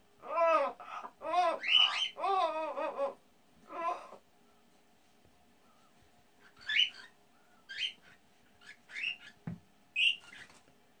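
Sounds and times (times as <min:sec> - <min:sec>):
parrot high-pitched calls: 0:00.2 - 0:04.2, 0:06.4 - 0:09.4, 0:10.0 - 0:10.6.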